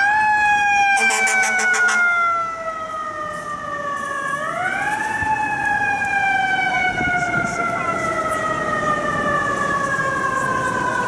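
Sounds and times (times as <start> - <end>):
rapid horn blasts: 1.0 - 2.1.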